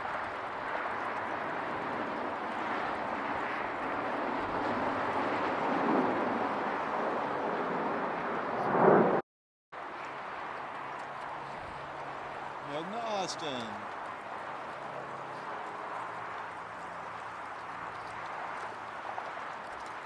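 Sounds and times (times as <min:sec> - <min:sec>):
jet airliner roaring overhead: 0:00.0 - 0:09.2.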